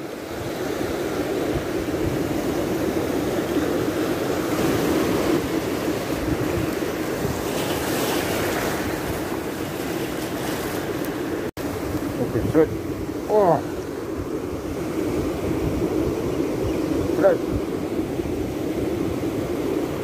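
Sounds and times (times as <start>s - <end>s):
wind on microphone: 0.0s - 20.0s
waves washing over rocky shore: 0.1s - 13.8s.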